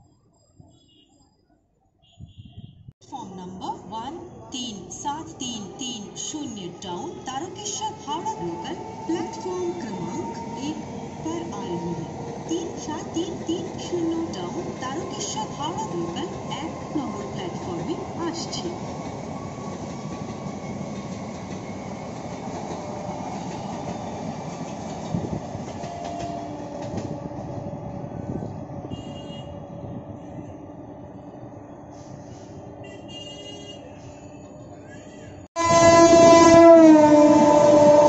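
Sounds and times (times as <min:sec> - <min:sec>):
train wheels rumbling on rail: 0:04.7 - 0:30.6
train horn: 0:28.9 - 0:29.6, 0:32.8 - 0:33.9, 0:35.6 - 0:38.0.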